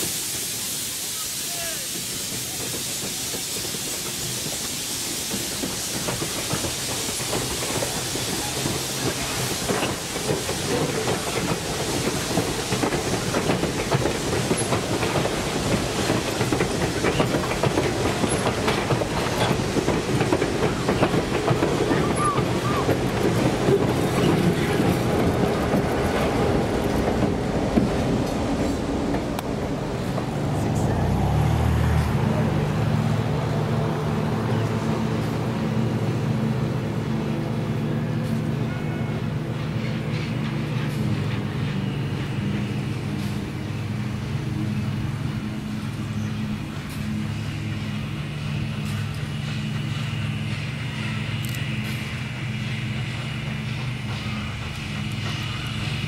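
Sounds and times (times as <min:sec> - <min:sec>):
train rumble: 0:00.0 - 0:56.0
train wheels clicking over rail joints: 0:01.8 - 0:30.4, 0:39.4 - 0:56.0.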